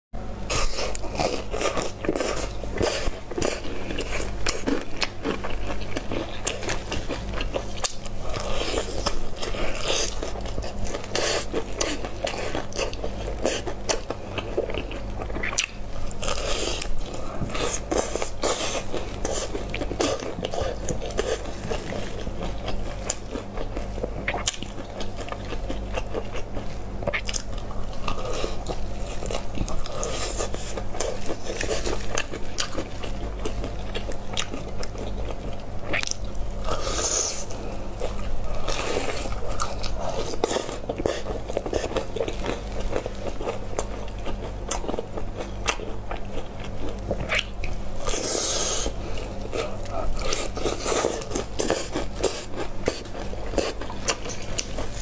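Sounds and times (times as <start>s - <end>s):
chewing crispy fried chicken: 0.5s - 55.0s.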